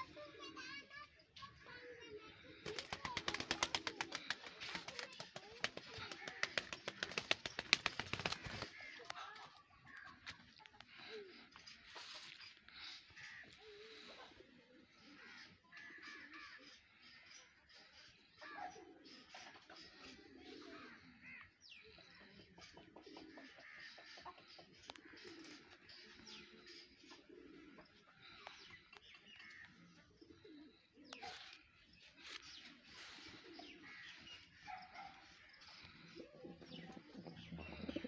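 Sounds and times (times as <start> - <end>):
small birds chirping: 0.0 - 38.0
pigeons cooing: 2.1 - 5.2, 18.4 - 28.8, 29.4 - 31.8, 32.5 - 38.0.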